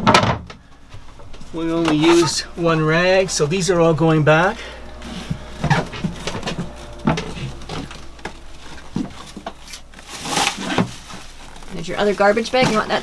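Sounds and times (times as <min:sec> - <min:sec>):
low steady hum: 0:00.0 - 0:13.0
packs rustling: 0:04.6 - 0:13.0.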